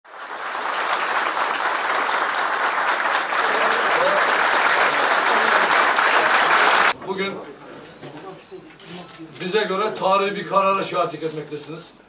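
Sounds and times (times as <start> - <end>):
crowd applauding: 0.0 - 7.0.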